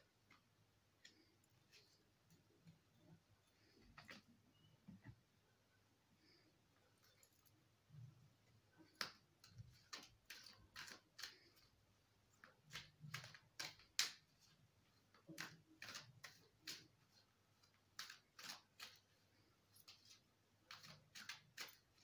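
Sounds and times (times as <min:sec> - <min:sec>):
cards being shuffled: 0:08.8 - 0:11.7, 0:12.4 - 0:14.6, 0:15.2 - 0:22.0.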